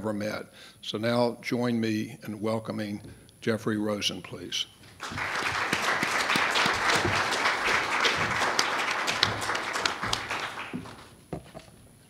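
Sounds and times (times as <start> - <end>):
audience applauding: 5.0 - 11.1
knocks: 6.6 - 7.4, 8.1 - 11.8.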